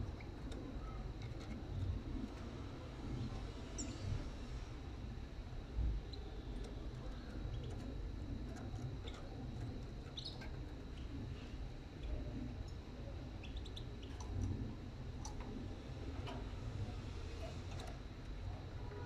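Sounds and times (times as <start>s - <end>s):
faint bird chirps: 10.0s - 11.1s, 13.3s - 14.3s.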